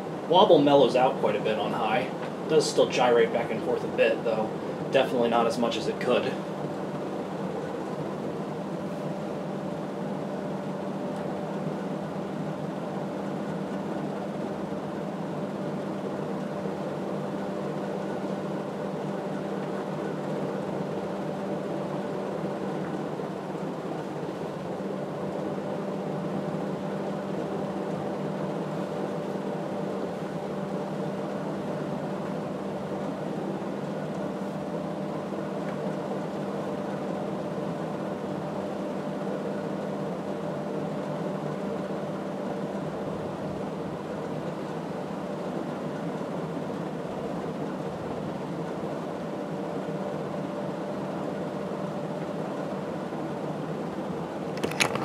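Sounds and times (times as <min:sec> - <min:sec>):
ceiling fan air rush: 0:00.0 - 0:55.0
clicks: 0:54.6 - 0:55.0.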